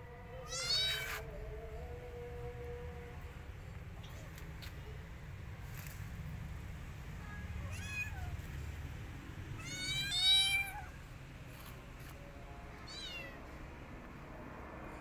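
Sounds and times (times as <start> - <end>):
kittens meowing: 0.4 - 1.2, 9.6 - 11.0, 12.8 - 13.4.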